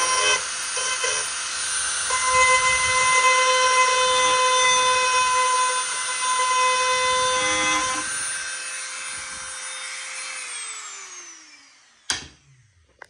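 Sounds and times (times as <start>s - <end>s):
rotary tool whining: 0.0s - 12.1s
motor spinning down: 7.0s - 12.8s.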